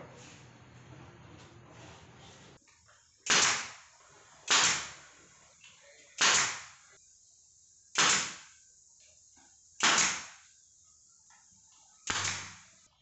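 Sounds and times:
pneumatic nail gun firing: 3.2 - 5.1, 6.2 - 6.9, 7.9 - 8.6, 9.8 - 10.6, 12.0 - 12.8.

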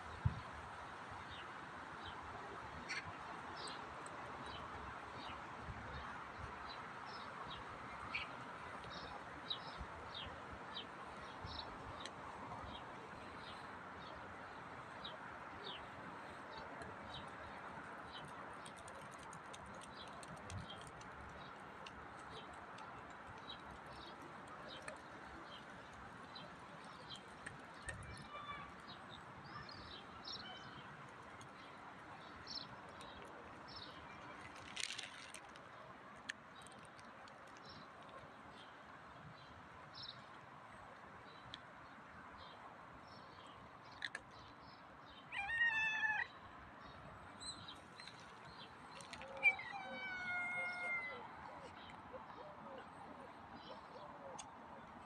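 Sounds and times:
faint outdoor background noise: 0.0 - 55.0
cat meowing: 49.4 - 51.2.

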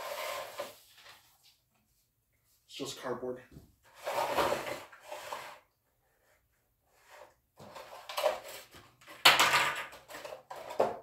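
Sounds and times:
plastic tray crinkling and knocking: 7.6 - 11.0.

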